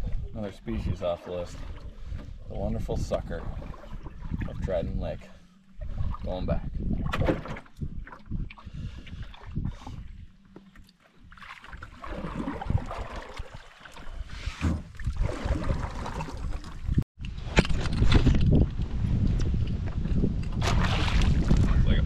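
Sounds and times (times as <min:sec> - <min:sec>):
paddle splashing through water: 0:03.0 - 0:04.8, 0:07.0 - 0:10.0, 0:10.9 - 0:17.0, 0:20.5 - 0:21.9.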